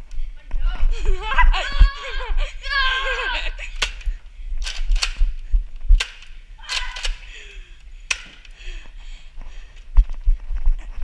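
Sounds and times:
toy blasters firing: 6.0s - 7.3s.

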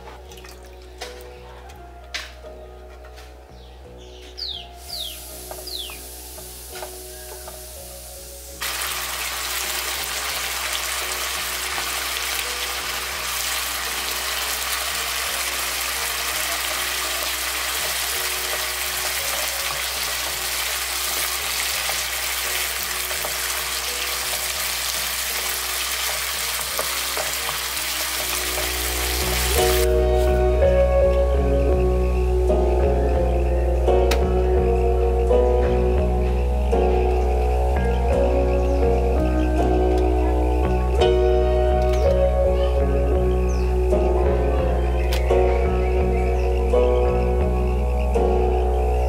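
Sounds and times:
curry sizzling in a frying pan: 4.8s - 29.9s.

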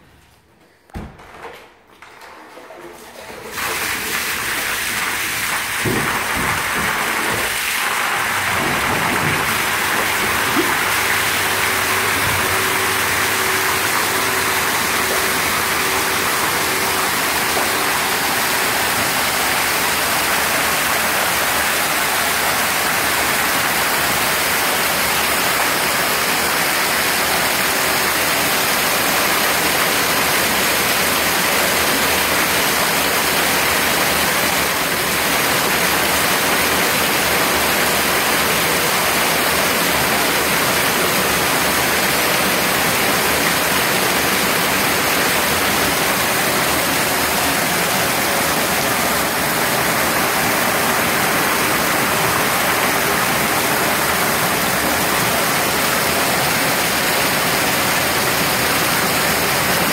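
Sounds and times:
water rushing into a tank: 2.2s - 59.9s.

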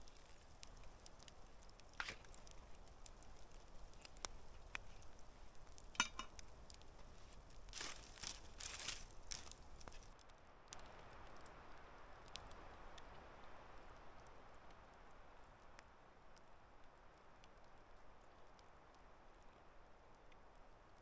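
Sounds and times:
tongs scraping grill grate: 1.8s - 2.6s, 5.7s - 6.4s
metal tongs clicking on grill: 6.0s - 6.4s.

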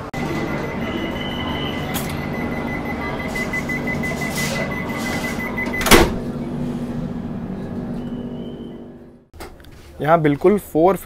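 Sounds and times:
high warning tone: 0.0s - 9.2s
doors shutting with thud: 4.1s - 6.4s
low hum: 4.8s - 9.3s.

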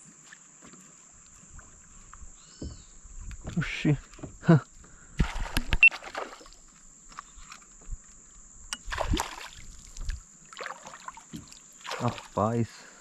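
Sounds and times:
water sloshing against a kayak: 0.0s - 13.0s
splashes and knocks: 5.2s - 6.6s, 8.7s - 12.6s.

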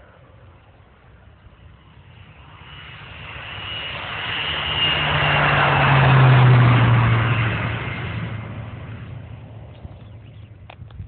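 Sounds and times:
propeller plane flying past: 0.0s - 11.0s.

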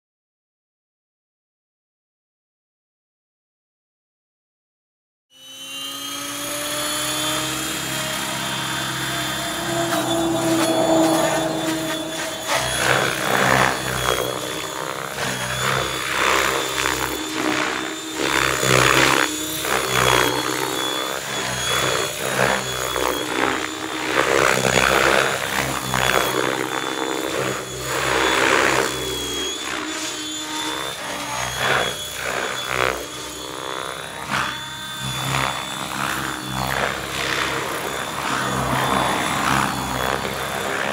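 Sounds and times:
electric motor whine: 5.3s - 40.9s
helicopter rotor whoosh: 5.4s - 40.9s.

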